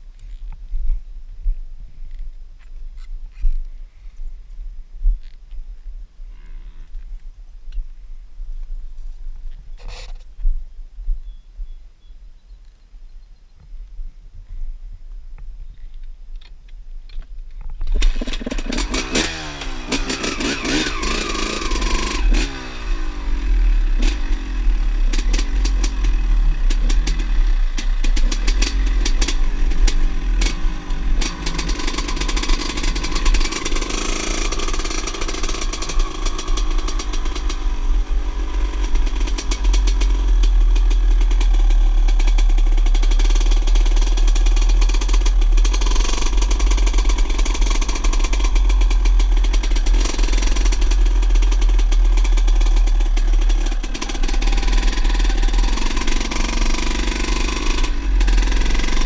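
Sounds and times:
small two-stroke engine revving: 17.9s - 59.0s.

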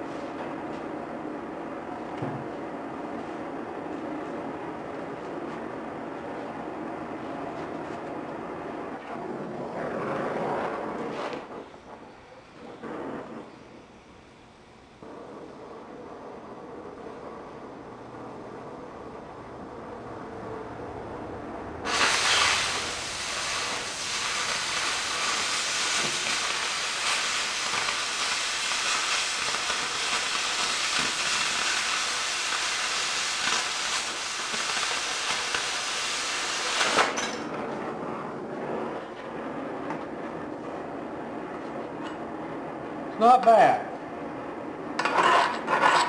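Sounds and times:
cutting torch hissing: 21.8s - 37.5s.

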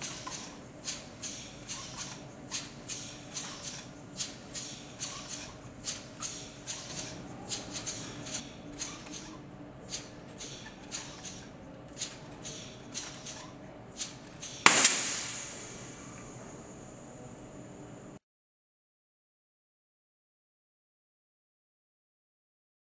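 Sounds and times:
pneumatic engine rhythmic hisses: 0.0s - 18.0s
loud sudden gas hiss: 14.6s - 16.8s.

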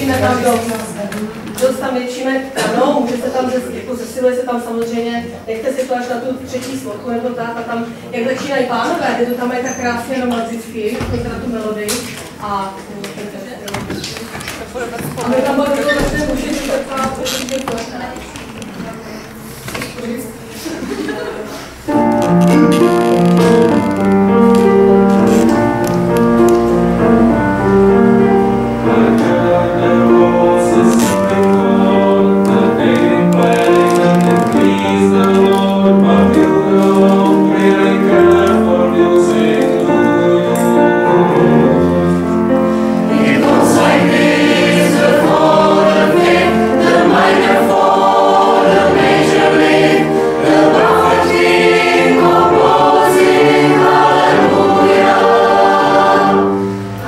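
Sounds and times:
mixed choir singing: 0.0s - 0.9s, 20.7s - 57.0s
grand piano: 0.0s - 4.6s, 14.2s - 57.0s.

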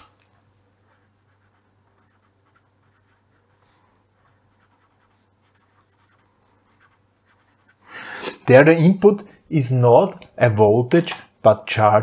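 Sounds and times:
faint low hum: 0.0s - 12.0s
marker pen writing on paper: 0.8s - 7.8s.

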